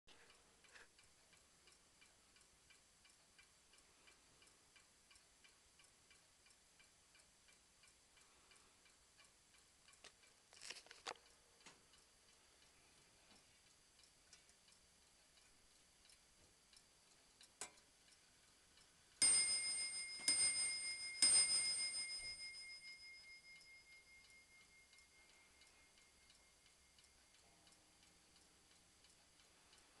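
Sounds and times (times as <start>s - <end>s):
clock movement clicks: 0.1s - 30.0s
mantel clock ticking: 0.1s - 30.0s
clock bell striking: 19.2s - 24.9s.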